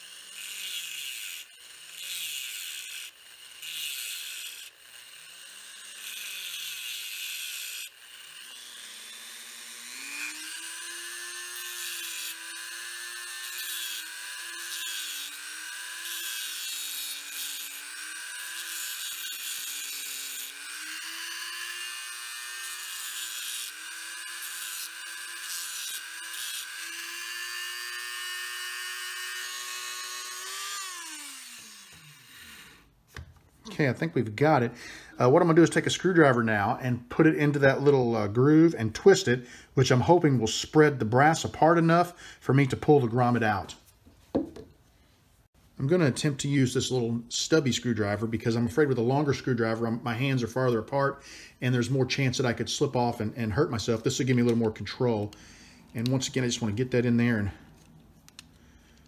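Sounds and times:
rotary tool cutting metal tube: 0:00.0 - 0:33.0.

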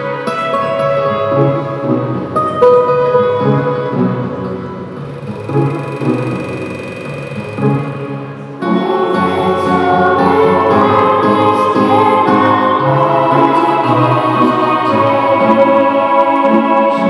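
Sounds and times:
music with choral singing: 0:07.6 - 0:17.0.

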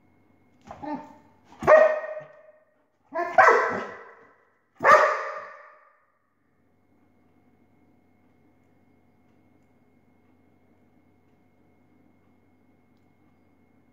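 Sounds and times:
dog barking: 0:00.7 - 0:05.9.

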